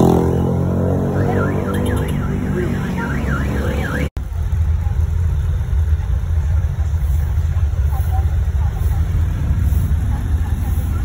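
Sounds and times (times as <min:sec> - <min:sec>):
low rumble of street traffic: 0:00.0 - 0:11.0
warbling electronic alarm: 0:01.0 - 0:04.1.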